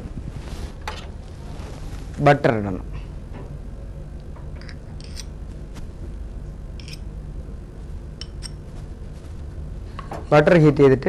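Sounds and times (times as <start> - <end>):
low steady hum: 0.0 - 11.0
metal spoon clinking on bowl: 8.2 - 8.6.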